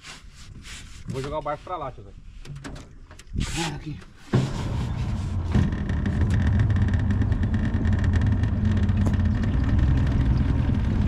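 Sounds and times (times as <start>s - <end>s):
outboard motor running: 4.3s - 11.0s.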